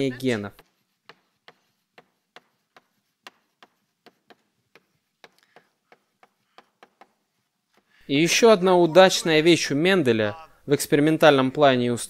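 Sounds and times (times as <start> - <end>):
chalk tapping on blackboard: 0.6 - 8.0.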